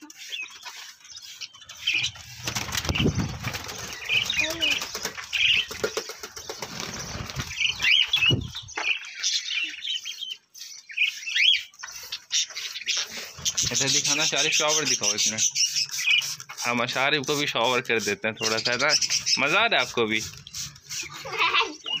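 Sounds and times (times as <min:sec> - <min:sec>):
budgerigars chirping: 0:00.1 - 0:22.0
wings flapping: 0:01.7 - 0:08.9.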